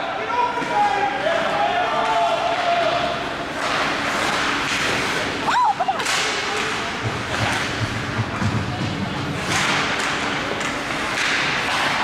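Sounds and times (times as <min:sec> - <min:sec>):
skates scraping ice: 0:00.4 - 0:12.0
stick hitting puck: 0:03.5 - 0:05.4, 0:06.0 - 0:12.0.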